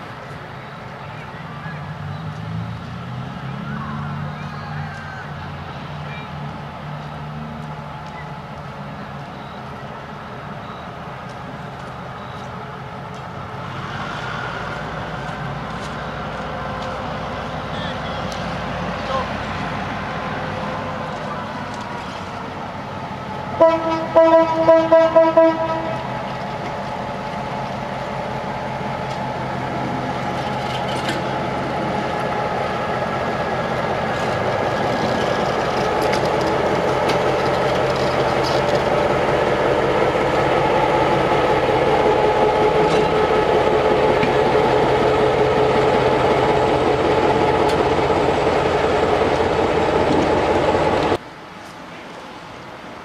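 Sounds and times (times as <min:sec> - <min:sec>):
locomotive engine passing: 0:00.0 - 0:51.2
locomotive horn blasts: 0:23.6 - 0:26.1.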